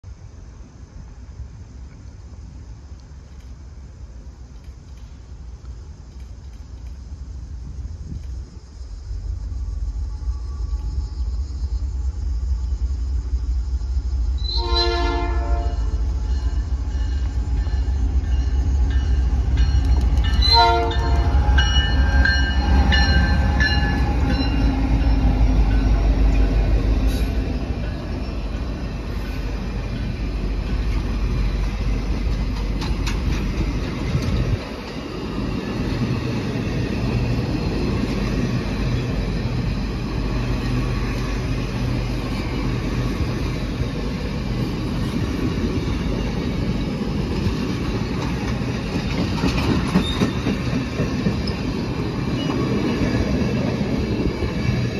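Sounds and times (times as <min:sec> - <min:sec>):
diesel locomotives rumbling: 0:00.0 - 0:54.9
train air horn: 0:14.4 - 0:16.8, 0:20.4 - 0:22.5
passenger cars wheel clatter: 0:30.6 - 0:35.2, 0:47.3 - 0:52.9.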